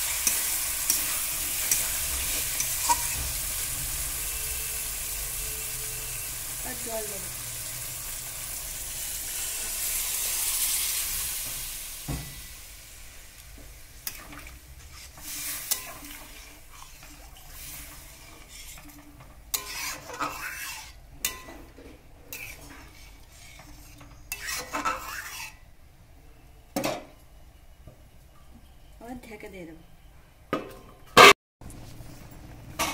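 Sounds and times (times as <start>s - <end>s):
metal spatula scraping wok: 0.0s - 7.3s, 14.0s - 25.7s, 32.7s - 32.9s
water sizzling in hot wok: 0.0s - 21.0s.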